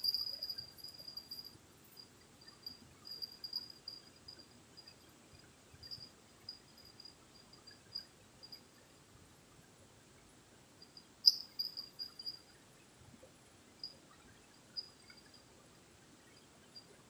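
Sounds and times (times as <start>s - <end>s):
crickets chirping: 0.0s - 9.0s, 10.8s - 12.7s, 13.7s - 15.6s, 16.2s - 17.0s.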